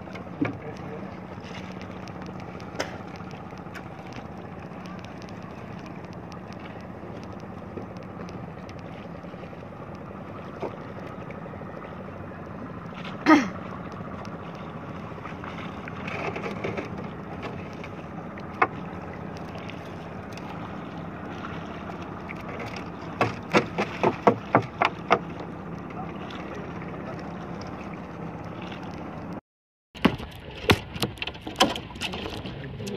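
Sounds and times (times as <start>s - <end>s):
boat engine droning: 0.0s - 29.4s, 30.0s - 32.9s
water noise: 0.0s - 29.4s, 30.0s - 32.9s
wind: 0.0s - 32.9s
sharp knocks: 23.1s - 25.3s.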